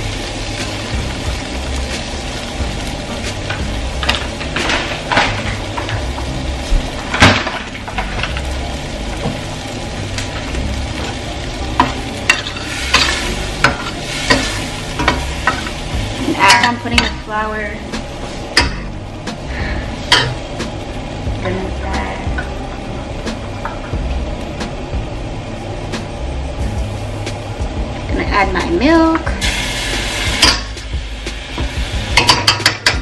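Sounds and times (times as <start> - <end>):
vegetables sizzling in a pan: 0.0 - 33.0
spoon scraping and knocking pan: 31.6 - 33.0.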